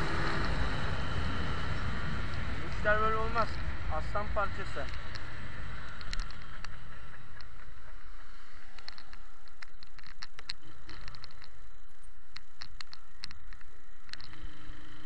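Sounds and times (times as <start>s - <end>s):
motorcycle engine rumble: 0.0s - 15.0s
wind rushing over microphone: 0.0s - 15.0s
small clicks: 4.8s - 7.6s, 8.6s - 15.0s.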